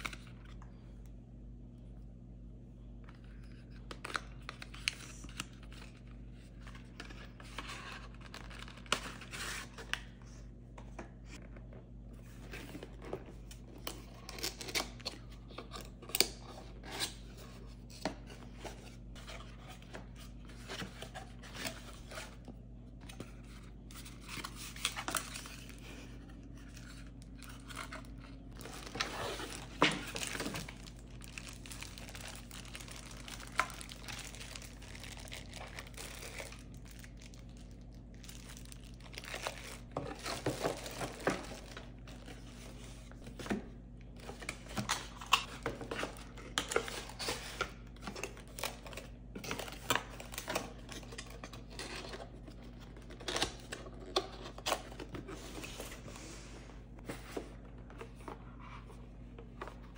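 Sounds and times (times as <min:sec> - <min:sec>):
cardboard rustling and tearing: 0:23.1 - 0:43.6
plastic film crinkling: 0:26.8 - 0:43.2.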